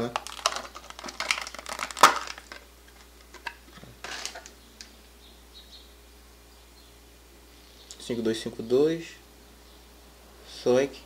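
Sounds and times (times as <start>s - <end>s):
plastic rustle: 0.0s - 4.5s.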